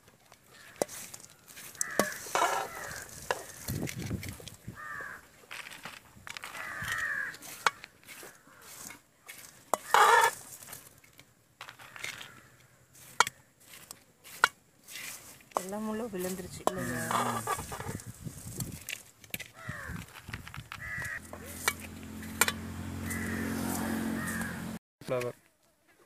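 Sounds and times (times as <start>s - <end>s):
crows cawing: 0.5s - 3.7s, 4.7s - 5.4s, 6.4s - 10.4s, 11.6s - 13.5s, 16.7s - 18.1s, 19.5s - 24.8s.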